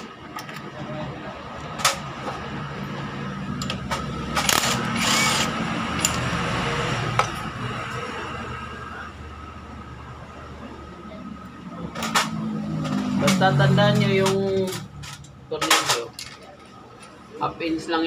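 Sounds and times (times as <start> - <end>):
metal parts clicking: 3.6 - 6.3, 14.0 - 16.8
power tool whirring: 4.4 - 6.2.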